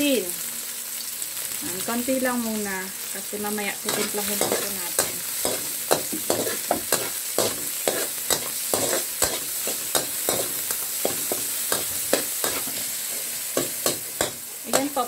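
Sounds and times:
vegetables sizzling in hot oil: 0.0 - 15.0
metal spatula scraping a wok: 3.8 - 15.0.

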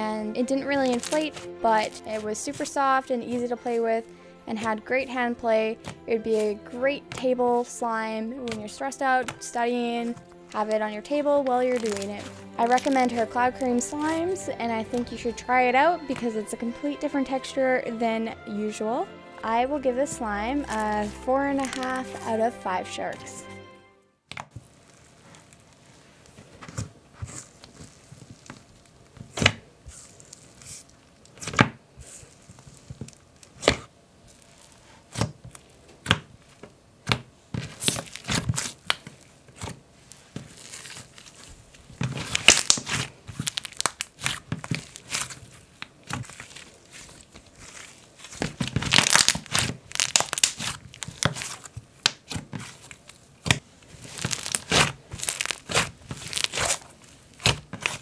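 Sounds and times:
slime crackling when squished: 0.7 - 2.7, 10.3 - 15.2, 20.6 - 22.5, 24.5 - 36.3, 37.0 - 58.0
slime sticky pops: 42.2 - 45.9.

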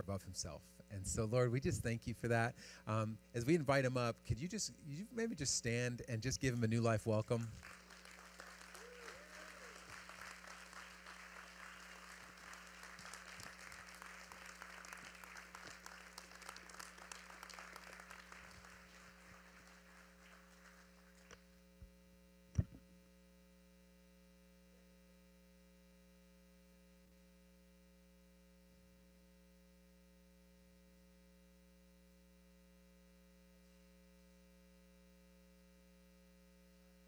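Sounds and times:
congregation applauding: 7.1 - 21.4
microphone handling clicks and thump: 22.5 - 22.8.

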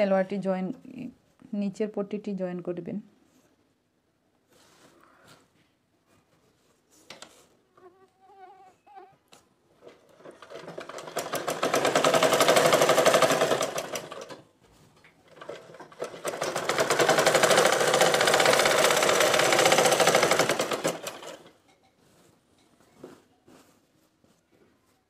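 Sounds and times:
sewing machine stitching: 9.8 - 14.5, 15.2 - 21.6.

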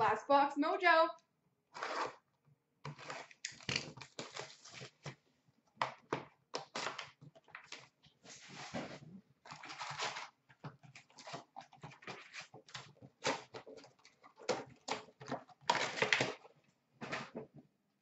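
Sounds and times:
cardboard and wrappers tearing: 2.9 - 5.2, 9.5 - 16.5.

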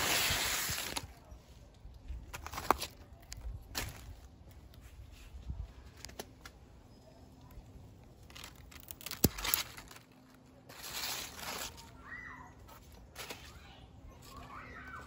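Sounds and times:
leaves rustling and crinkling: 0.0 - 15.0
garden scissors snipping: 8.3 - 10.0.

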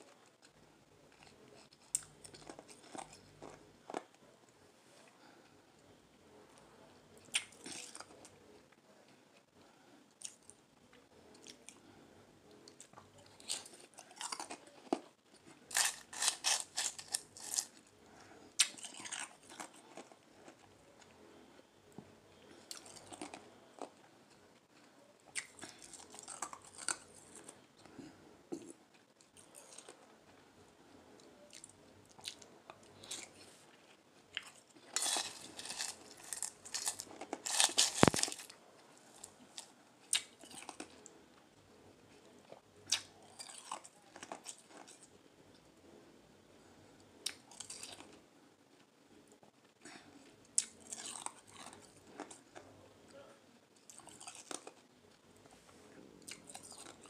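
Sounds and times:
ice crunching in mouth: 15.7 - 17.8, 34.9 - 38.5.

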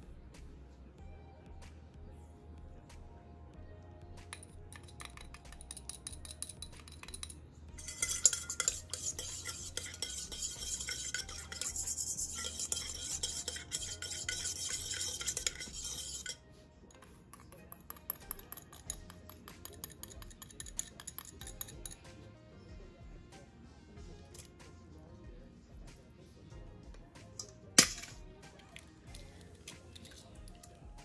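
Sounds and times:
whisk scraping metal bowl: 4.3 - 16.4, 17.0 - 22.0.

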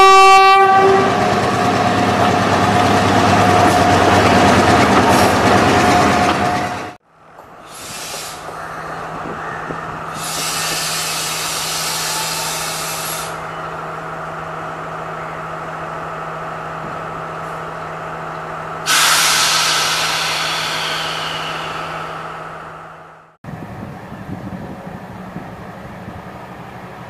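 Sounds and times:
compressed air hissing: 7.6 - 8.6, 10.1 - 13.4, 18.9 - 22.6
diesel train engine idling: 9.9 - 27.0.

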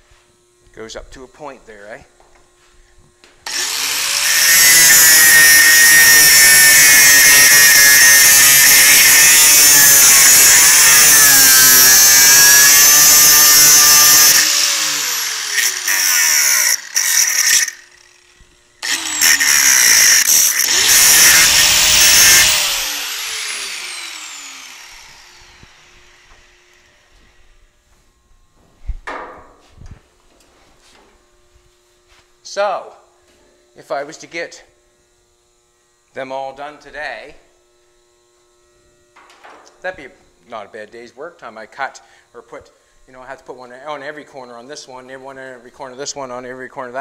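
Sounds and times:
angle grinder cutting metal mesh: 3.5 - 27.2.

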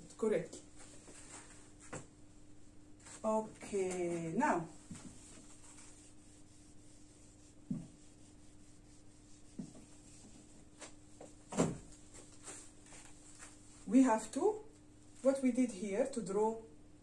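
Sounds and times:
eraser rubbing whiteboard: 4.8 - 11.0.

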